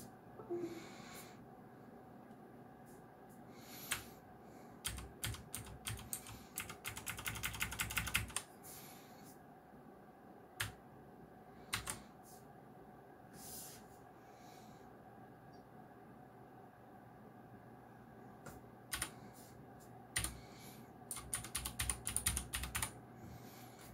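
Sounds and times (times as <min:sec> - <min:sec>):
clicky mechanical keyboard keystrokes: 0:04.8 - 0:08.5, 0:11.7 - 0:12.0, 0:21.1 - 0:22.9.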